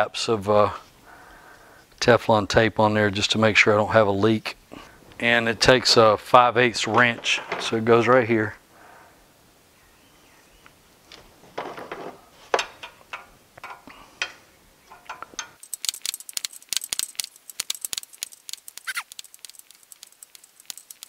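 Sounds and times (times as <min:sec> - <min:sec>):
wrench clicking on metal: 0:14.9 - 0:21.0
short falling squeak: 0:18.8 - 0:19.1.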